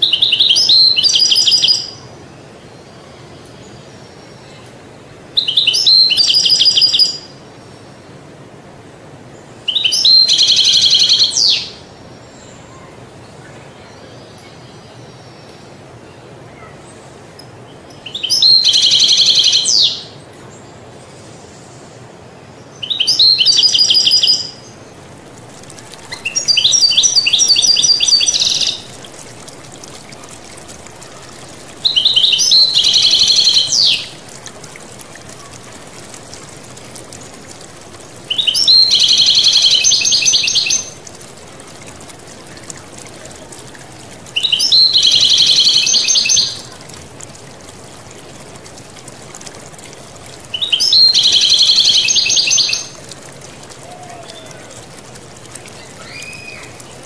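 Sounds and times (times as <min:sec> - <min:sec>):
flowing water murmur: 0:00.0 - 0:57.0
goldfinch twittering: 0:25.6 - 0:41.0.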